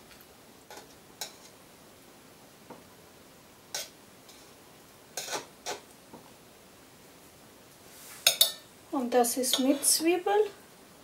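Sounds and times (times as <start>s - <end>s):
cutlery clinking on metal and plate: 8.2s - 8.7s.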